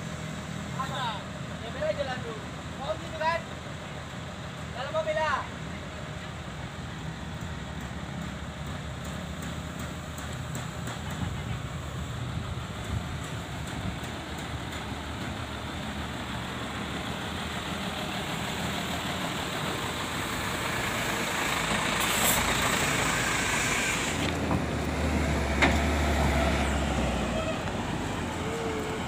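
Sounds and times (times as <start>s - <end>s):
diesel truck engine: 0.0s - 29.0s
air hiss: 21.3s - 24.3s.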